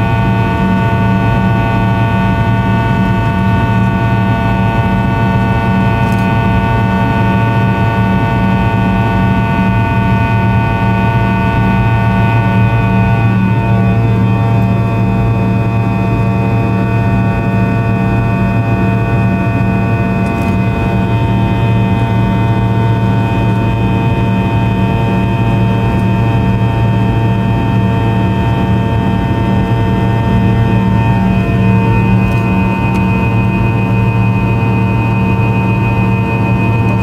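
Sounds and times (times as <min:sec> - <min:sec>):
jet engine drone in cabin: 0:00.0 - 0:37.0
engine whining tones: 0:10.0 - 0:37.0.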